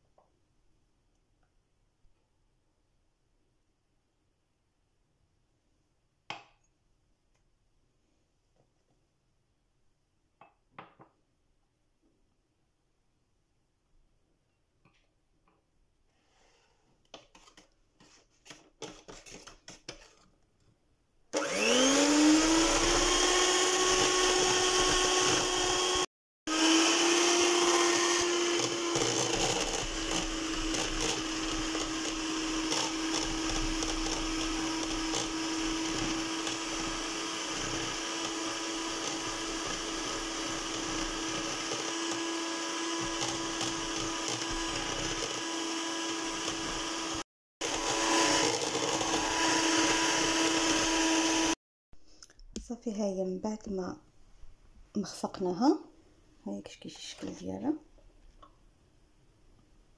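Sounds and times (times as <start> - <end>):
electric hand mixer whirring: 21.4 - 51.6.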